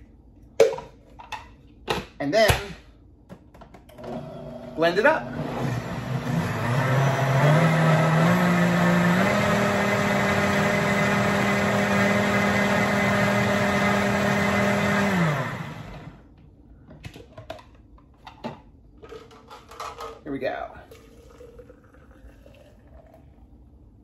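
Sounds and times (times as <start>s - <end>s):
blender motor running: 4.0s - 16.2s.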